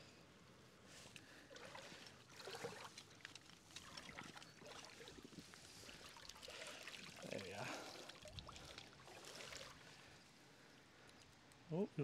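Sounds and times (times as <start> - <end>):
water splashing and trickling: 1.5 - 10.1.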